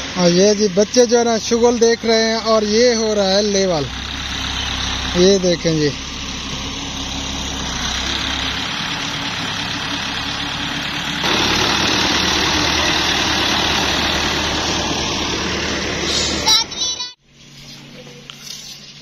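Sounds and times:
tractor engine running: 0:00.0 - 0:17.2.

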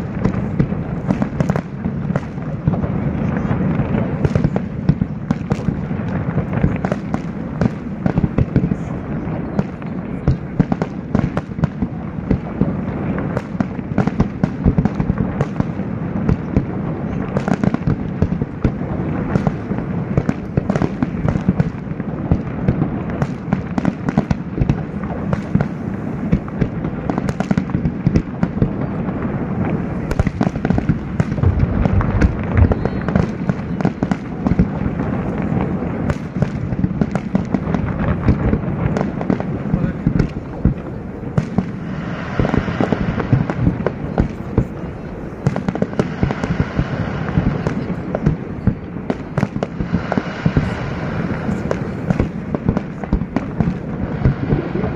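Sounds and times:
fireworks bangs and crackles: 0:00.0 - 0:54.9.

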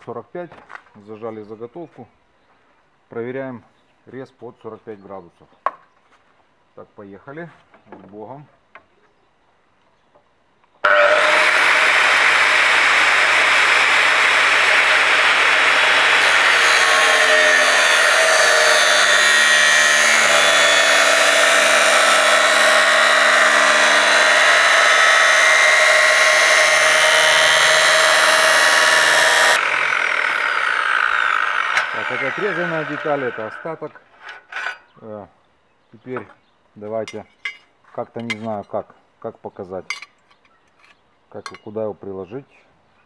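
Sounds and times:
angle grinder cutting: 0:10.8 - 0:33.8.

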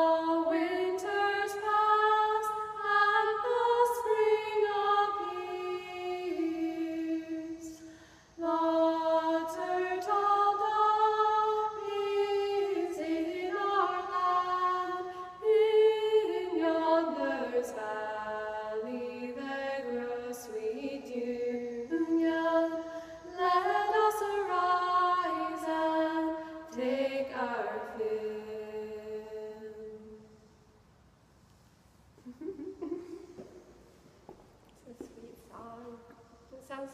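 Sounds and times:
women singing a cappella: 0:00.0 - 0:30.3.

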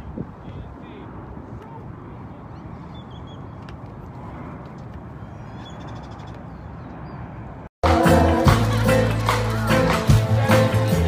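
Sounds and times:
wind rumble on microphone: 0:00.0 - 0:07.6.

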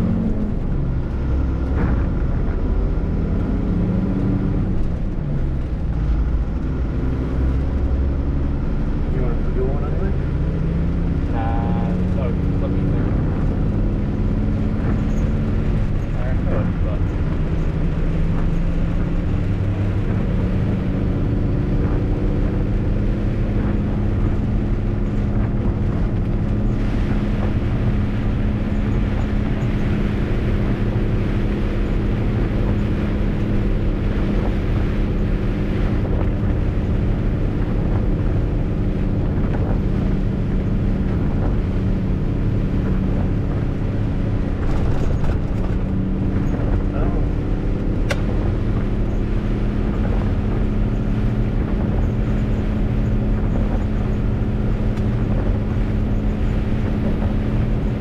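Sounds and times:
wet road and rain hiss: 0:22.7 - 0:58.0.

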